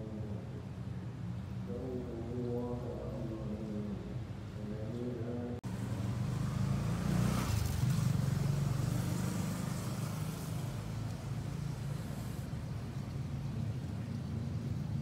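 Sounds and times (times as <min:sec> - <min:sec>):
low engine hum: 0:00.0 - 0:15.0
car passing by: 0:05.7 - 0:15.0.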